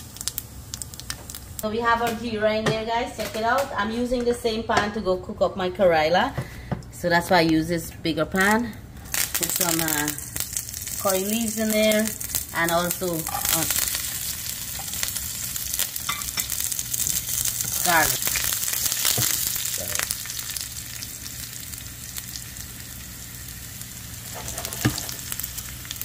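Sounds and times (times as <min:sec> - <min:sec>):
spices sizzling in hot oil: 0:00.0 - 0:01.7, 0:09.0 - 0:26.0.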